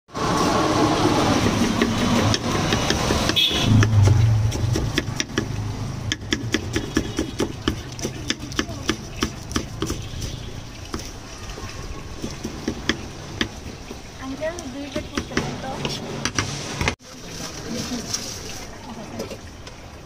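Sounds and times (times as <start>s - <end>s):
knife chopping on wooden board: 1.4s - 10.1s.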